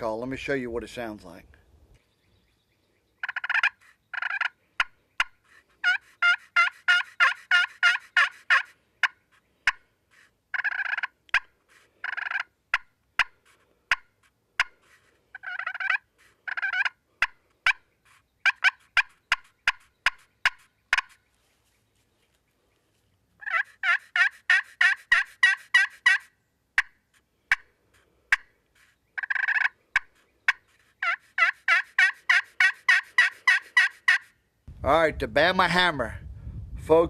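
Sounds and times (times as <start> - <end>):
turkey call clucks: 3.2 - 21.3, 23.4 - 34.4.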